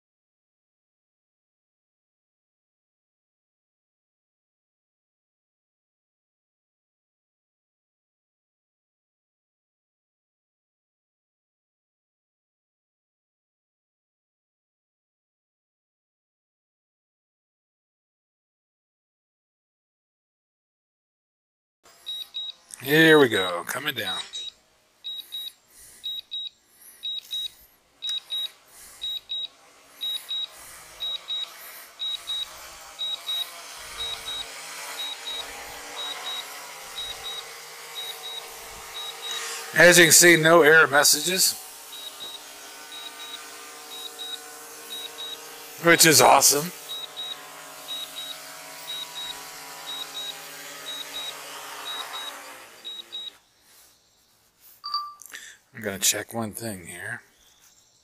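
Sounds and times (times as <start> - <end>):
drone propellers whirring: 21.9 - 53.4
controller beeping in pairs: 22.0 - 53.4, 54.8 - 55.4.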